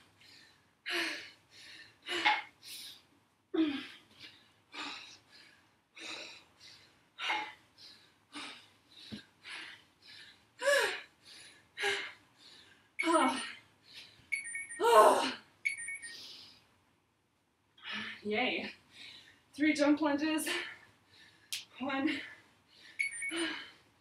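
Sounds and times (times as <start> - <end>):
woman breathing hard: 0.1 - 3.0, 3.6 - 12.9, 20.5 - 21.5.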